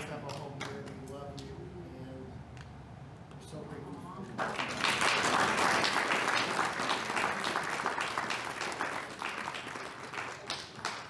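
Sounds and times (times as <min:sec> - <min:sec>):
congregation applauding: 0:04.4 - 0:11.0.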